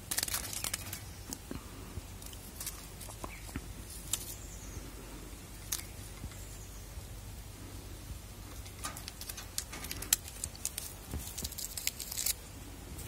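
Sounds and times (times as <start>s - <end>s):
wrapper crinkling: 0.0s - 1.1s, 8.8s - 12.4s.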